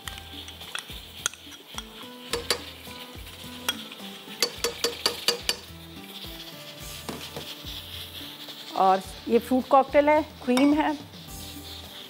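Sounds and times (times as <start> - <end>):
spoon tapping: 0.0 - 2.8, 3.6 - 5.7
spoon scraping glass container: 0.0 - 12.0
spoon clinking on glass: 0.1 - 2.8, 3.6 - 5.7.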